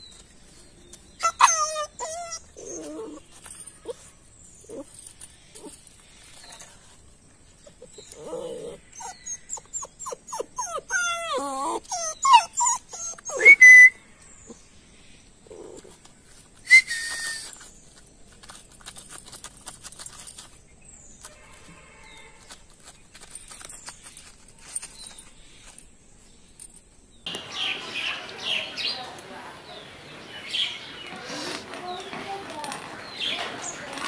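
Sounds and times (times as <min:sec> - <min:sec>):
puppy whining squeals: 0:01.2 - 0:04.9, 0:07.8 - 0:14.0, 0:16.6 - 0:17.8.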